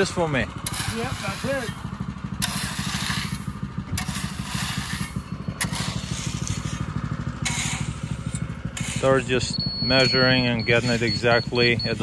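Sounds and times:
rake scraping crushed stone: 0:00.0 - 0:12.0
small engine running: 0:00.0 - 0:12.0.

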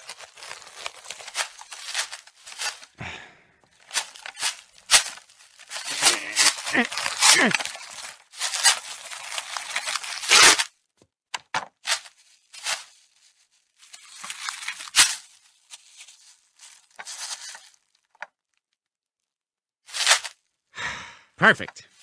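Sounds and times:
plastic wrap crackling tear: 0:00.0 - 0:03.0, 0:03.6 - 0:10.8, 0:11.6 - 0:18.9, 0:19.8 - 0:20.5
plastic wrap crinkling: 0:00.0 - 0:03.0, 0:03.6 - 0:10.8, 0:11.6 - 0:18.8.

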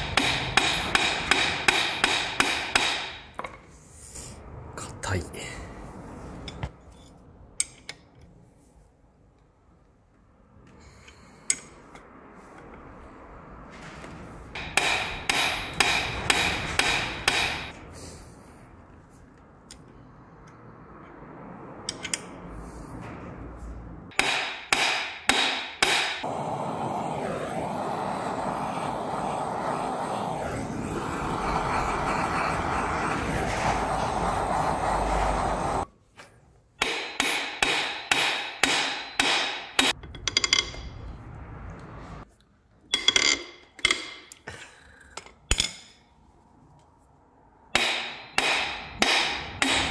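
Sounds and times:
metal-on-metal hammer strikes: 0:00.0 - 0:03.6, 0:14.6 - 0:17.8, 0:24.1 - 0:26.3, 0:36.8 - 0:41.0, 0:47.7 - 0:49.9
steady rushing noise: 0:25.9 - 0:35.9.

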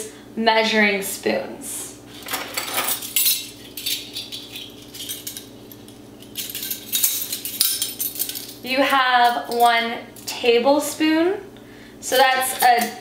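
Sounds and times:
metal spoons clinking: 0:02.3 - 0:08.6, 0:09.2 - 0:10.3, 0:12.1 - 0:13.0.

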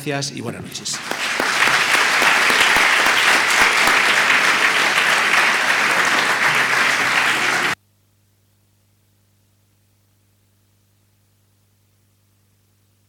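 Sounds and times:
audience applauding: 0:00.8 - 0:07.8.

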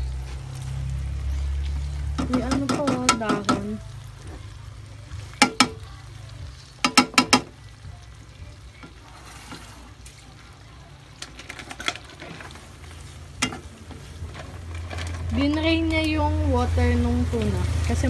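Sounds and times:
faint sizzle: 0:00.0 - 0:18.0
spatula knocking a wok: 0:02.1 - 0:03.8, 0:05.4 - 0:05.8, 0:06.8 - 0:07.6.

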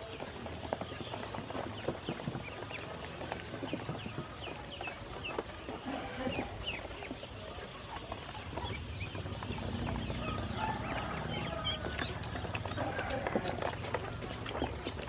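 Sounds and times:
ducklings peeping: 0:00.0 - 0:15.0.

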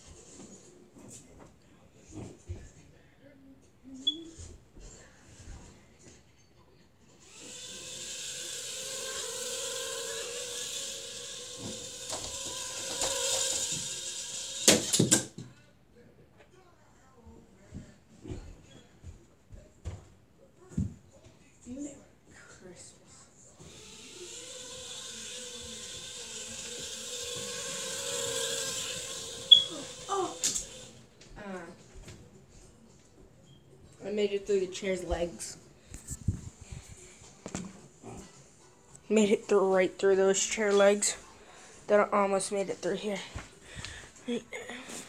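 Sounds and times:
small electric motor whining: 0:07.2 - 0:15.1, 0:23.6 - 0:31.0.

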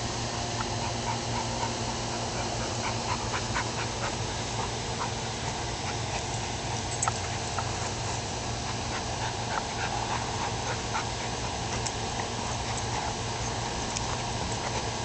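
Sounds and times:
dogs play-fighting: 0:00.0 - 0:15.0
small ticks: 0:05.0 - 0:07.9, 0:11.6 - 0:14.9.

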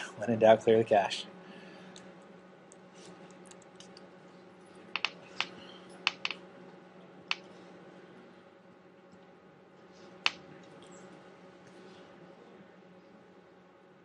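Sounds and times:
faint steady hum: 0:00.0 - 0:14.0
laptop keys clicking: 0:04.9 - 0:06.4.

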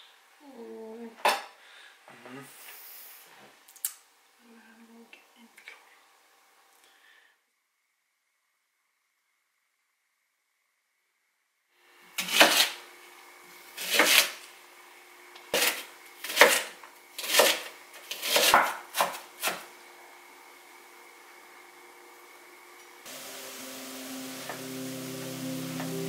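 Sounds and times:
knife cutting onion on wooden board: 0:13.8 - 0:14.4, 0:15.5 - 0:19.7.

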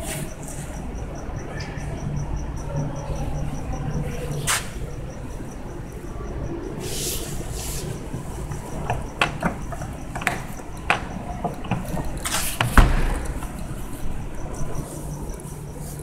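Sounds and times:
crickets chirping: 0:00.0 - 0:16.0
thump: 0:12.6 - 0:13.5.

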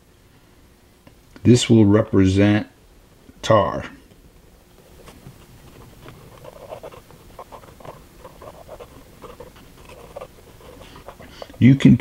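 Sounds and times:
marker scratching on paper: 0:05.0 - 0:11.7.

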